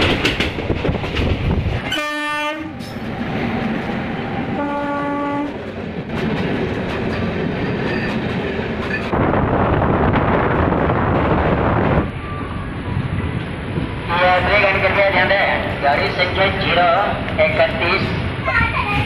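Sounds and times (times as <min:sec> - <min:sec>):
train rail rumble and clatter: 0:00.0 - 0:19.0
locomotive horn blasts: 0:01.9 - 0:02.8, 0:04.6 - 0:05.6.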